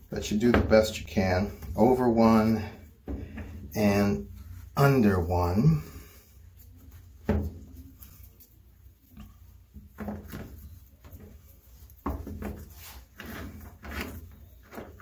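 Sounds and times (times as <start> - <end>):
rope rustling and rubbing: 6.2 - 15.0.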